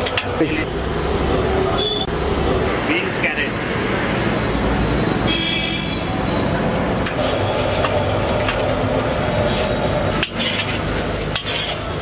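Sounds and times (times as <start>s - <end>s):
metal spatula scraping wok: 7.1s - 12.0s
vegetables sizzling in a wok: 7.2s - 12.0s.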